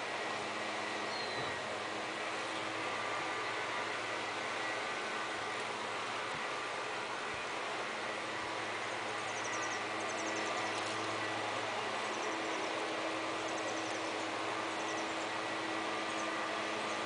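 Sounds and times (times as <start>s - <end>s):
low hum: 0.0s - 17.0s
faint high ticking chirps: 9.2s - 11.2s.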